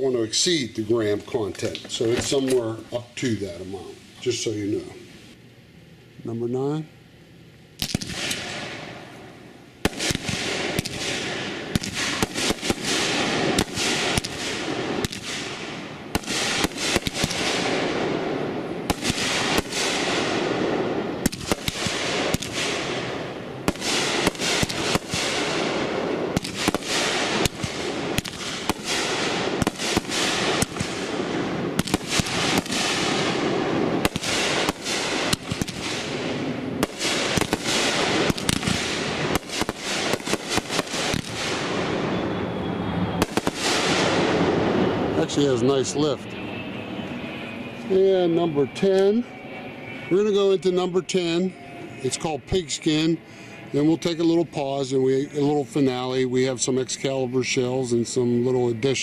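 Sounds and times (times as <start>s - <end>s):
firework sharp reports: 0.0s - 5.4s, 7.8s - 59.0s
firework shot launching: 7.8s - 9.0s, 9.8s - 42.2s, 43.2s - 45.4s
firework crackle: 7.8s - 9.2s, 9.8s - 46.1s.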